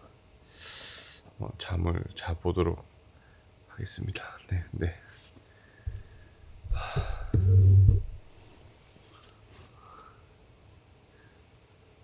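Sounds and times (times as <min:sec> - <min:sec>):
knock: 0:06.8 - 0:08.2.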